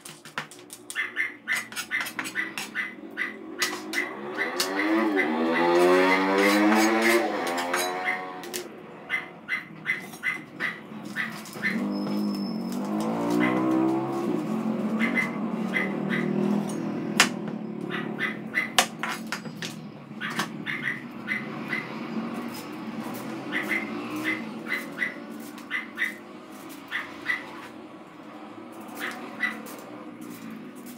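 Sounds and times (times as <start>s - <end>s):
knife chopping on cutting board: 1.6s - 2.7s, 17.2s - 17.4s.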